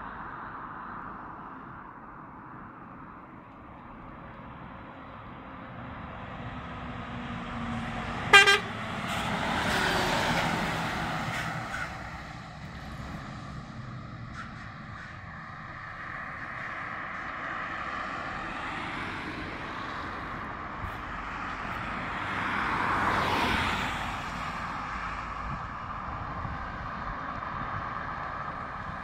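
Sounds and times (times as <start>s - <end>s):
lorry passing by: 4.5s - 25.7s
loud horn toots: 8.3s - 9.2s.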